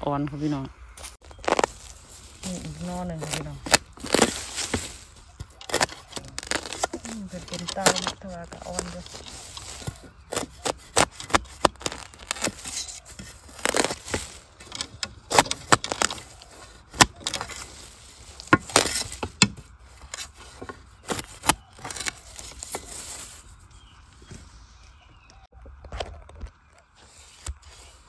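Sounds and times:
gritty soil scraping: 0.3 - 28.0
spade chopping into soil: 1.4 - 23.0.

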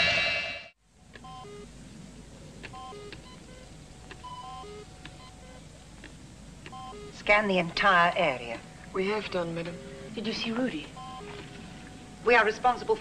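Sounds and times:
electronic computer beeps: 1.2 - 1.7, 2.7 - 5.6, 6.7 - 13.0.

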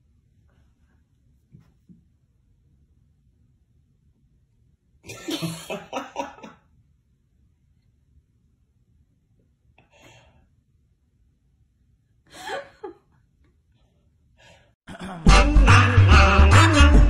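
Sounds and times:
music: 15.0 - 17.0.

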